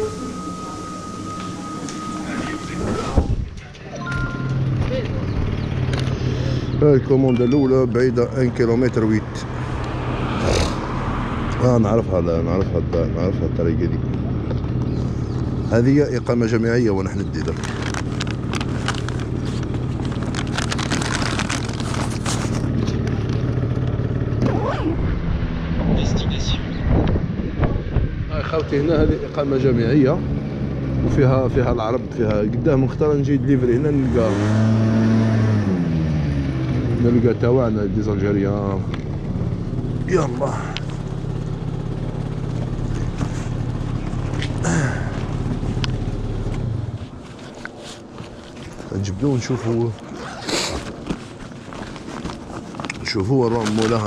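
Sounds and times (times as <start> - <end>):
motorbike engine idling: 4.1 - 10.2, 10.9 - 24.4, 36.4 - 49.0
bag rustling and clicking: 17.1 - 23.9, 42.5 - 54.0.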